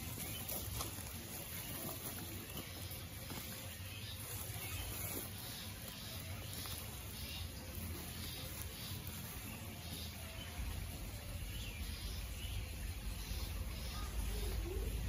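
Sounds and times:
plastic sack rustling and crinkling: 0.0 - 10.6.

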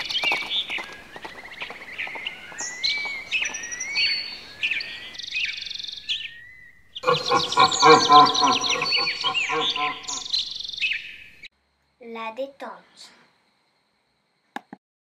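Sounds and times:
birds chirping and whistling: 0.0 - 11.1
buzzy bird trill: 7.0 - 10.4.

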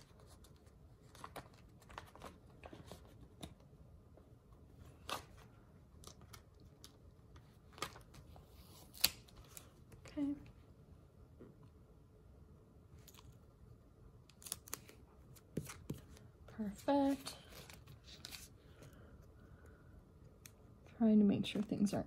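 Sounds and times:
paper crinkling: 0.0 - 3.6, 14.3 - 19.1.

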